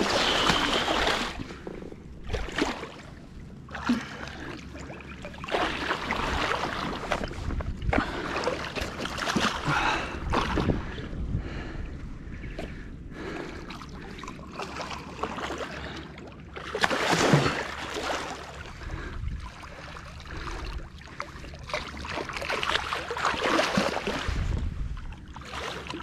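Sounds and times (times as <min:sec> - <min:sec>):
fish splashing in water: 0:00.0 - 0:01.5, 0:03.8 - 0:07.3, 0:16.6 - 0:18.6
wind rumble on microphone: 0:00.0 - 0:15.2, 0:18.6 - 0:21.0, 0:23.8 - 0:26.0.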